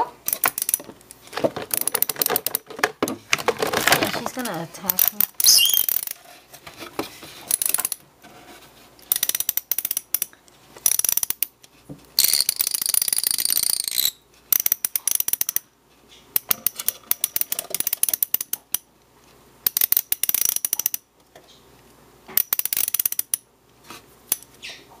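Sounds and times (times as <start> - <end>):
ratchet wrench clicking: 0.3 - 0.8, 4.9 - 6.2, 7.5 - 8.0, 9.1 - 11.5, 12.2 - 15.6, 16.4 - 18.8, 19.6 - 21.0, 22.4 - 23.4.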